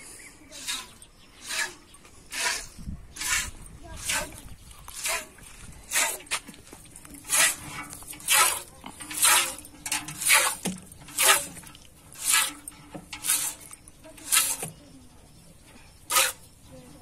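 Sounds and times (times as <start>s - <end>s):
milk squirting into a steel pail: 7.1s - 14.8s, 16.1s - 16.5s.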